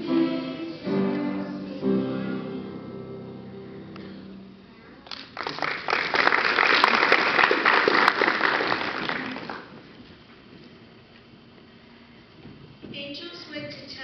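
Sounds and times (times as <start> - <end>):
audience applauding: 5.1 - 9.8.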